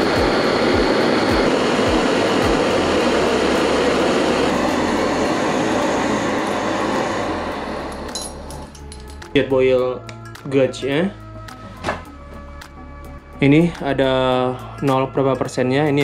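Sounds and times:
gas stove burners hissing: 0.0s - 9.0s.

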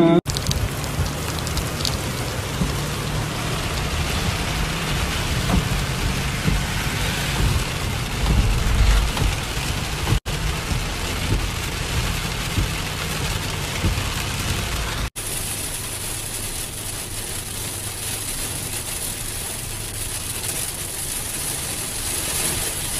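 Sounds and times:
deep low rumble: 0.0s - 15.1s
car low hum: 0.0s - 22.9s
rain on a moving car: 0.3s - 22.9s
tyres hissing on wet road: 0.3s - 22.9s.

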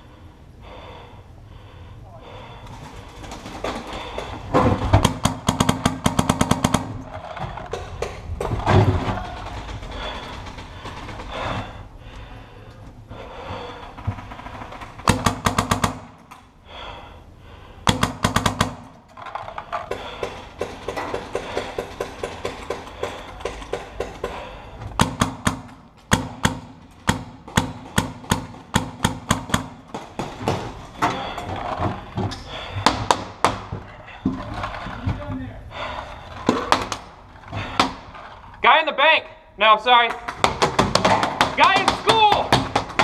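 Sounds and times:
paintball markers firing: 17.9s - 19.0s.

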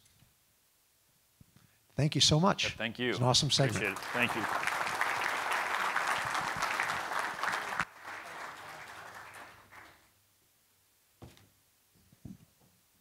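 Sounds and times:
audience applauding: 3.6s - 10.1s.

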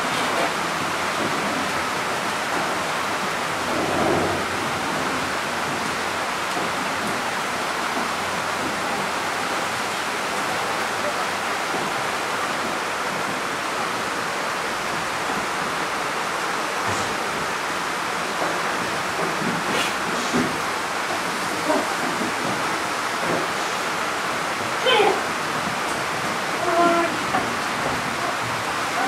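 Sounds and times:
steady rushing noise: 0.0s - 9.1s.

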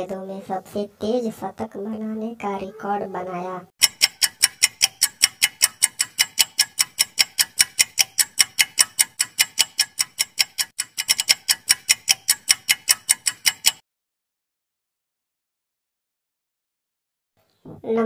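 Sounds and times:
fast clock ticking: 3.8s - 13.8s.

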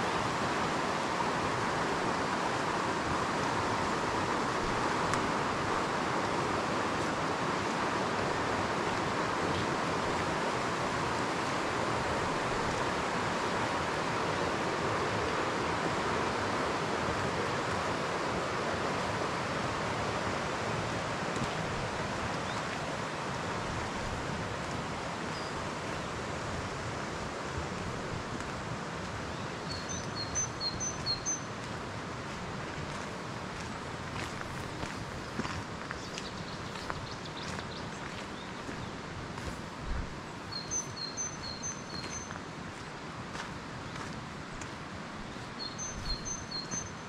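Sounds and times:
outdoor background noise: 0.0s - 47.0s
bird chirping: 29.3s - 31.5s, 40.4s - 42.3s, 45.6s - 47.0s.

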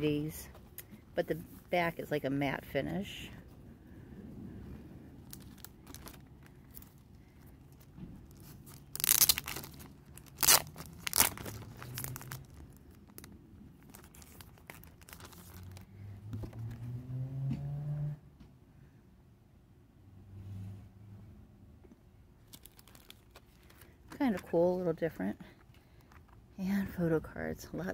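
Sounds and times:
plastic wrapping tearing and crinkling: 5.2s - 15.9s, 22.4s - 24.0s.

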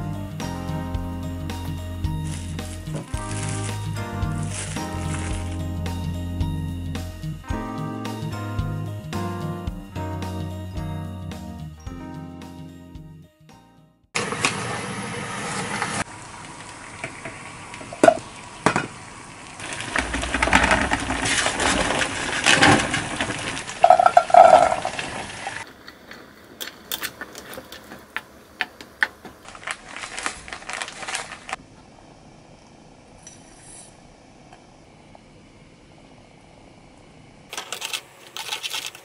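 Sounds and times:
utensils and dishes clinking: 37.5s - 39.0s.

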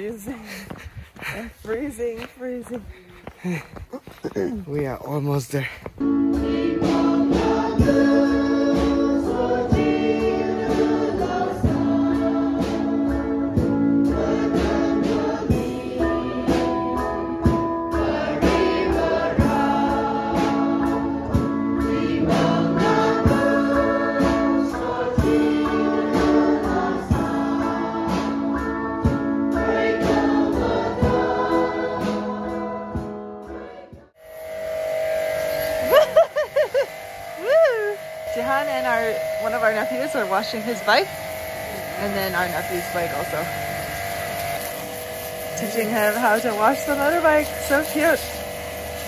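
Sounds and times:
congregation singing a hymn: 6.0s - 36.3s
steady beat: 34.4s - 48.4s.

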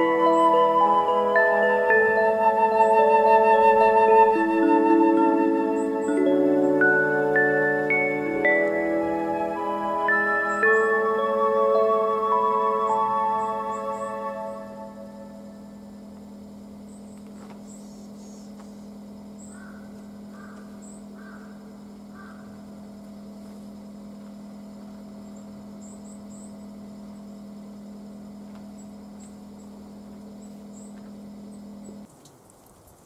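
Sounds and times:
thin high chirps: 0.0s - 15.8s
steady low hum: 0.0s - 32.1s
short bird calls: 16.9s - 22.6s.

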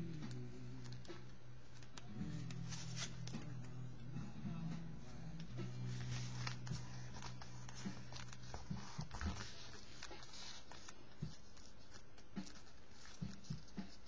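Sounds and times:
paper rustling: 0.2s - 3.7s, 5.4s - 14.0s
fingers tapping paper: 5.4s - 14.0s.

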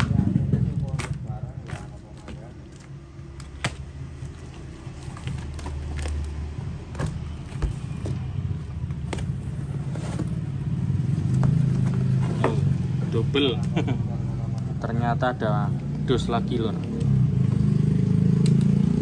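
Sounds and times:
cardboard clicks and crackles: 0.7s - 10.6s.

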